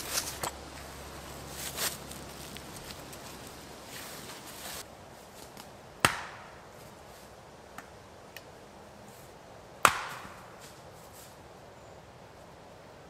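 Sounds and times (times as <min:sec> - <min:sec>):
axe splitting firewood: 0:09.8 - 0:10.3.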